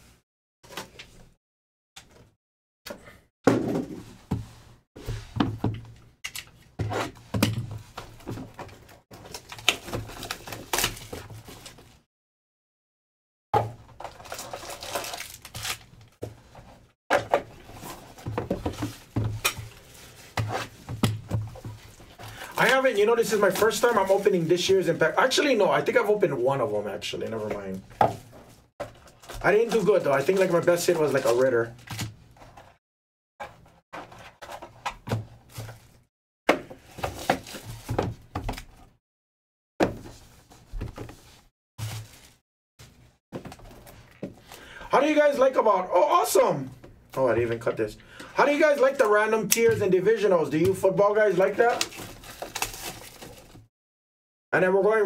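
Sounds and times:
plastic wrap crinkling: 0:14.1 - 0:16.2.

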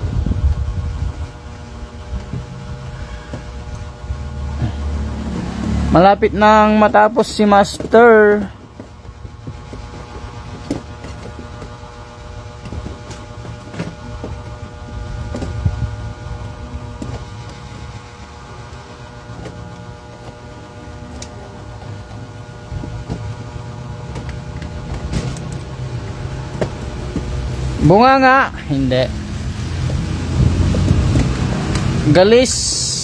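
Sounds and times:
steady hum: 0:00.0 - 0:33.0
low rumble: 0:28.8 - 0:32.0.

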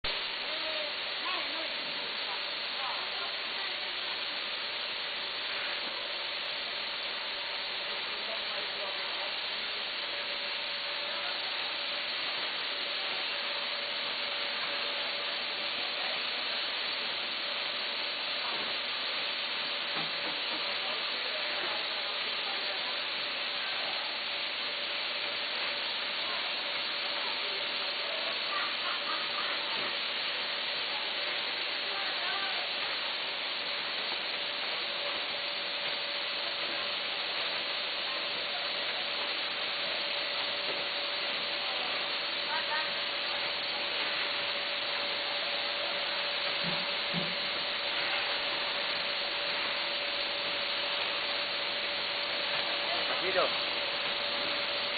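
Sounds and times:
faint steady hum: 0:00.0 - 0:54.9
packaging machines hissing: 0:00.0 - 0:54.9.

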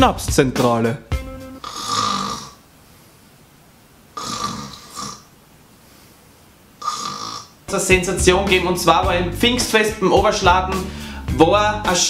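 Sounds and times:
man snoring: 0:01.6 - 0:02.6, 0:04.2 - 0:05.3, 0:06.8 - 0:07.6.

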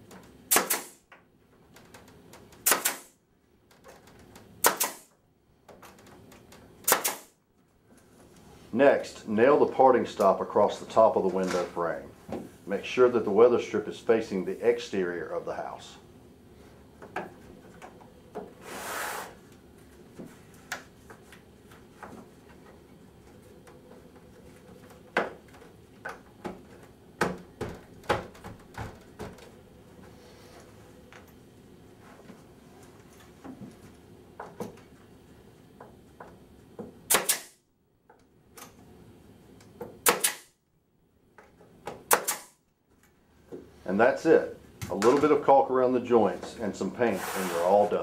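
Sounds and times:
nail gun firing: 0:00.5 - 0:01.0, 0:02.6 - 0:03.2, 0:04.6 - 0:05.1, 0:06.8 - 0:07.4, 0:37.1 - 0:37.6, 0:40.0 - 0:40.6, 0:42.1 - 0:42.6.

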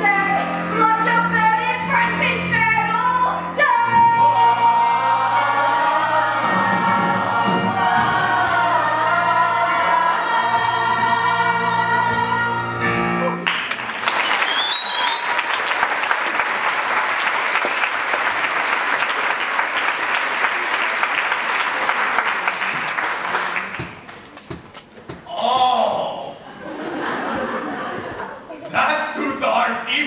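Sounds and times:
chorus singing with orchestra: 0:03.3 - 0:13.2
audience applauding: 0:13.4 - 0:24.9
whistle: 0:14.1 - 0:15.5.

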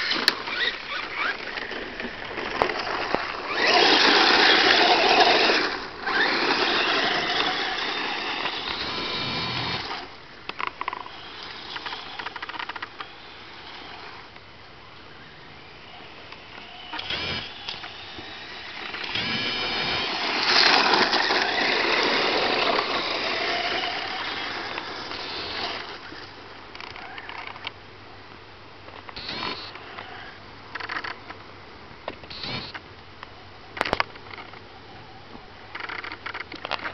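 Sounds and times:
tyres scrabbling over gravel: 0:00.0 - 0:14.2, 0:16.6 - 0:27.5
electric motor whining: 0:03.5 - 0:10.1, 0:10.8 - 0:14.3, 0:15.6 - 0:26.2, 0:29.2 - 0:30.3, 0:32.3 - 0:32.8.

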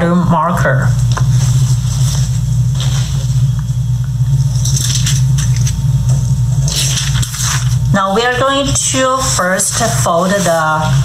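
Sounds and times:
loud low hum: 0:00.0 - 0:11.0
foil and plastic crinkling: 0:04.6 - 0:05.7, 0:06.6 - 0:11.0.

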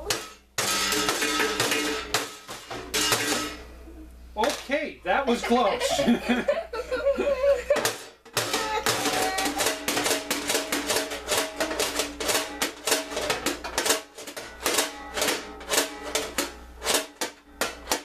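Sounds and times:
rapid banging on steel frame: 0:00.0 - 0:03.7, 0:07.7 - 0:18.0.

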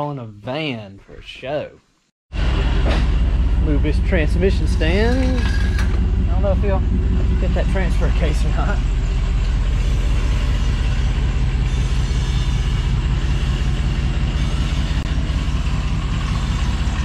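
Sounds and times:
van engine idling: 0:02.4 - 0:12.0.

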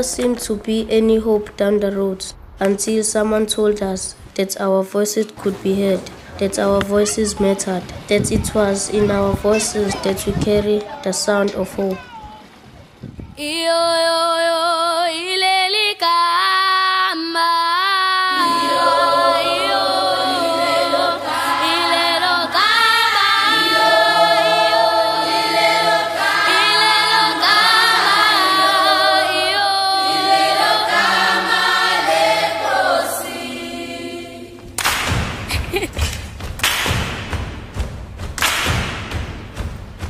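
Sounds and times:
choir singing in harmony: 0:18.3 - 0:34.8.

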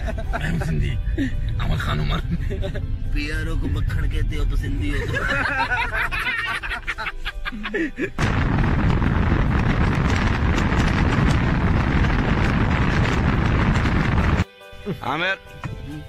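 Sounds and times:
music: 0:00.0 - 0:08.2, 0:13.8 - 0:16.0
wind and road noise in car: 0:08.2 - 0:14.4.

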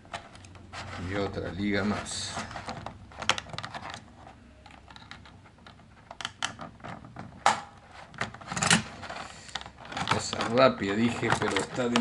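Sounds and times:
plastic packaging crinkling: 0:06.7 - 0:12.0
loud plastic crackle: 0:07.0 - 0:12.0.

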